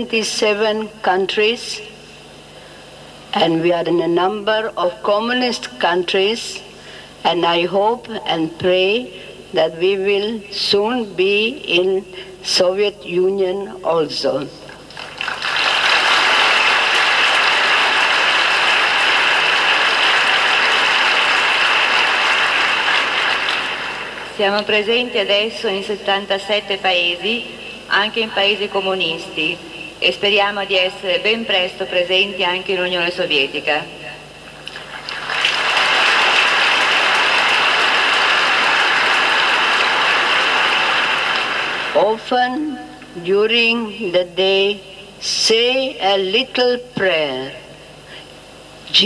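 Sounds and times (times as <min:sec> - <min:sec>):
audience applauding: 0:14.9 - 0:24.3, 0:34.7 - 0:42.0.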